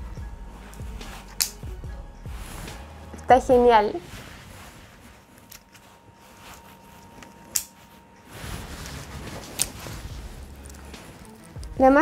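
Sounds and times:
quiet rustling: 2.3s - 12.0s.

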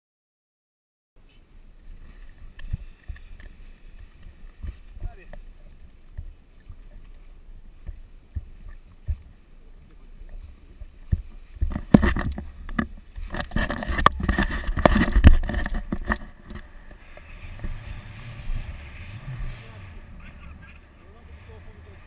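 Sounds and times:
wind buffeting microphone: 1.7s - 22.0s.

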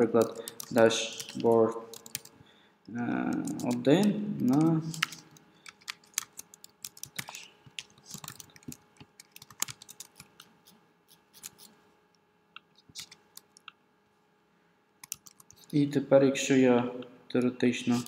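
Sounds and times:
computer keyboard typing: 0.2s - 2.4s, 3.3s - 11.7s, 15.0s - 15.6s.

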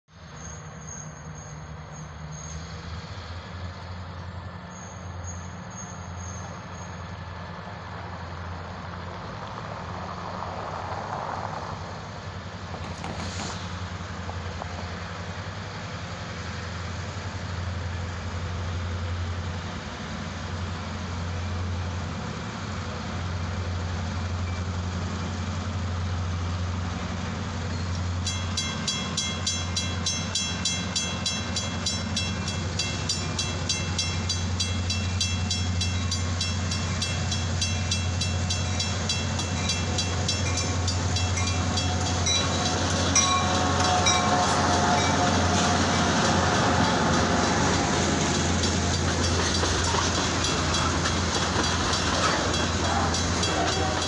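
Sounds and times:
diesel locomotive engine rumble: 0.1s - 54.0s
bell ringing: 28.3s - 47.7s, 52.0s - 54.0s.

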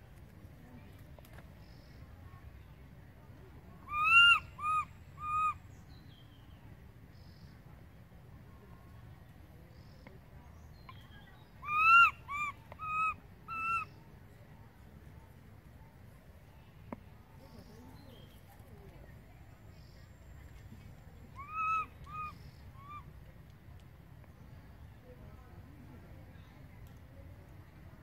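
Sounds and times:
baby monkey crying: 3.9s - 5.5s, 11.6s - 13.8s, 21.4s - 23.0s.

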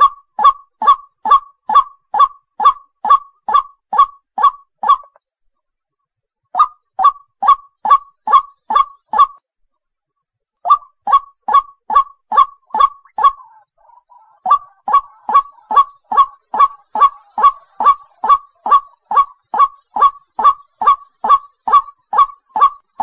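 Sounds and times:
faint bird chatter: 0.0s - 23.0s
bird harsh calls: 6.6s - 9.4s, 10.7s - 23.0s.

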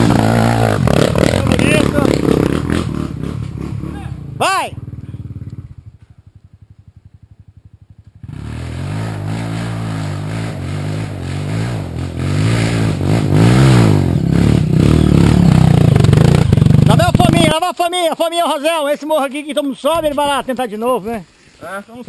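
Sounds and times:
dirt bike engine revving: 0.0s - 5.9s, 7.8s - 17.6s.

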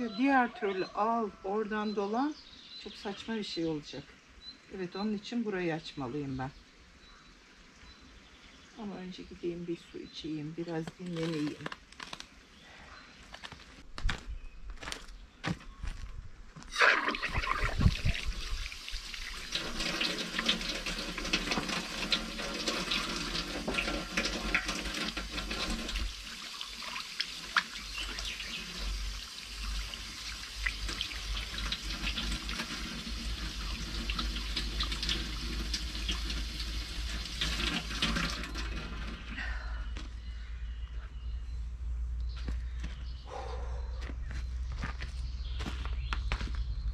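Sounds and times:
water running from tap: 16.8s - 39.2s.

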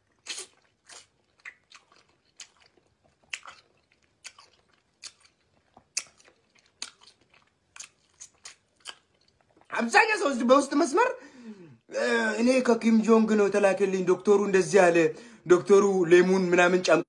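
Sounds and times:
person chewing crunchy food: 0.0s - 9.8s.

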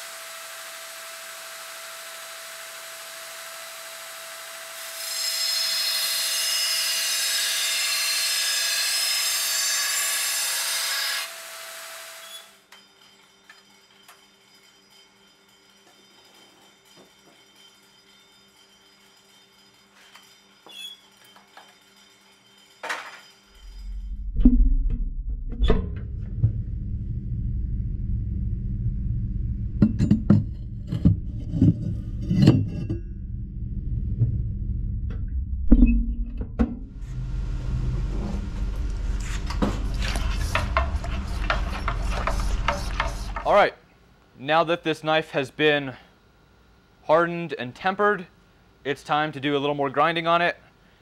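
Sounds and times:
low hum: 23.5s - 43.6s
belt grinder motor hum: 37.0s - 43.5s.

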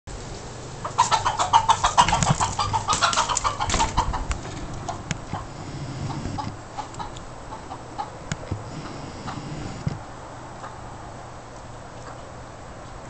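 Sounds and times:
rooster squawking and clucking: 0.7s - 10.9s.

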